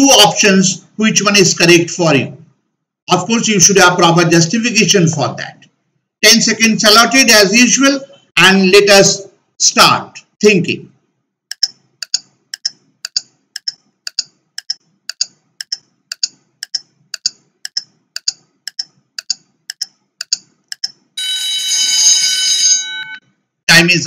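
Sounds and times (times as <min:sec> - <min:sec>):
clock ticking: 0:11.5 - 0:21.0
alarm ringing: 0:21.2 - 0:23.3.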